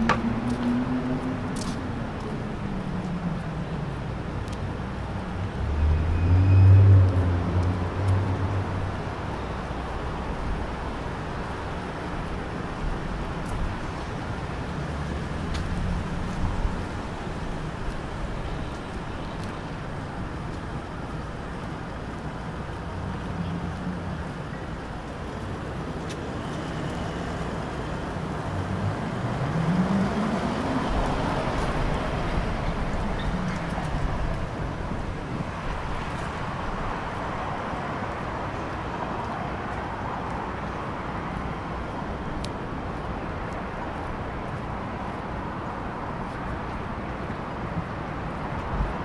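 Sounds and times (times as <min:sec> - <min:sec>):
road traffic noise: 0:00.0 - 0:49.0
vehicle accelerating past: 0:05.5 - 0:08.6, 0:28.5 - 0:32.2.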